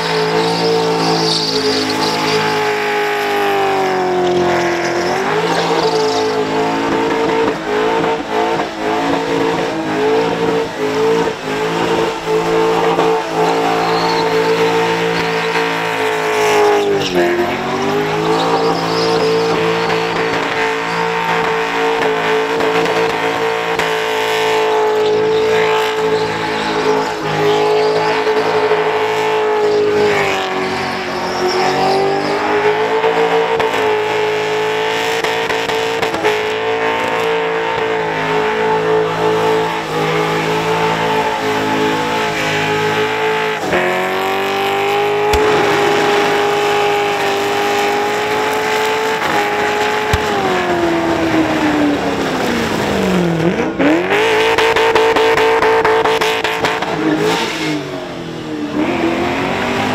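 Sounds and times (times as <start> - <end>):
tyres squealing: 0.0 - 7.8, 11.0 - 22.4, 24.8 - 33.4
car engine at high revs: 0.0 - 59.9.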